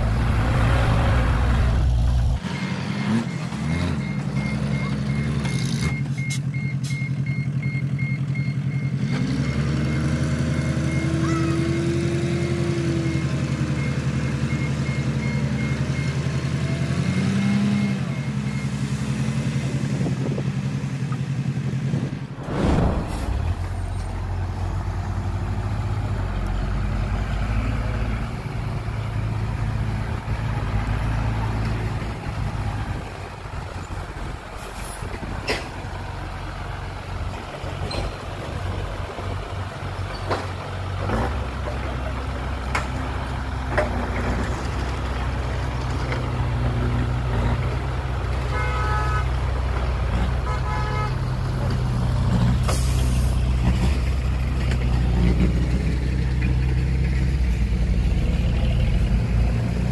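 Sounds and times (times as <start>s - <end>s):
heavy diesel engines running: 0.0s - 59.9s
reversing alarm beeping: 2.4s - 11.2s.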